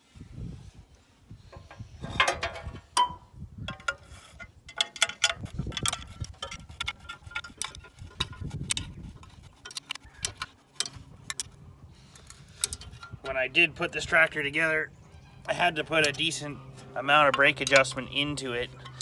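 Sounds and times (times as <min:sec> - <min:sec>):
metallic clicks and clinks of tools: 0:02.2 - 0:08.9, 0:09.6 - 0:13.3, 0:16.0 - 0:19.0.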